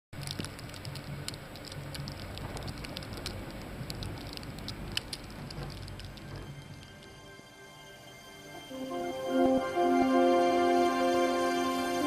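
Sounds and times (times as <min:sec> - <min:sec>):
snow ticking on metal: 0:00.2 - 0:07.3.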